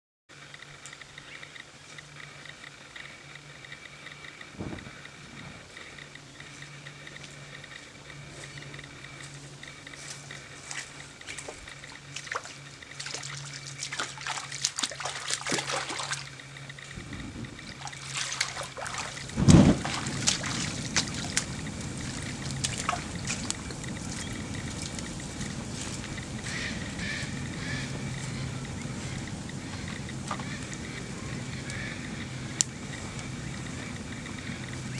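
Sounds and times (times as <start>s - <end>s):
sharp ticks: 0.4s - 34.9s
fire crackling: 4.0s - 13.0s, 16.6s - 34.9s
fire whooshing and rumbling: 4.5s - 5.9s, 16.9s - 17.8s, 19.2s - 31.5s
water splashing: 10.7s - 34.9s.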